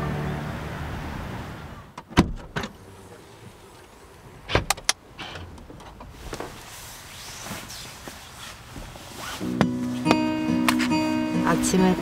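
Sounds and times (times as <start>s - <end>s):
car door hardware clicking: 4.4s - 6.1s.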